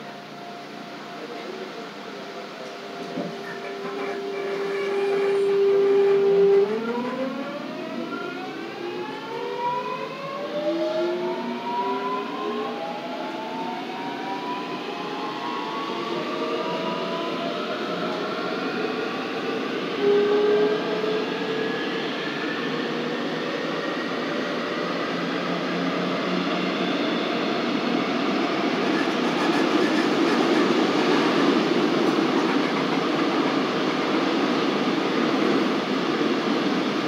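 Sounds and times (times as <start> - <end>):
loud steady tone: 0.0 - 7.4, 28.7 - 35.2
wheel and track rumble: 28.8 - 36.6.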